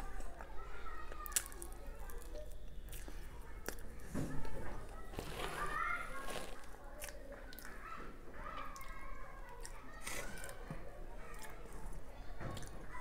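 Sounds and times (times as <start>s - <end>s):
spoon squishing into cake: 1.2s - 7.7s.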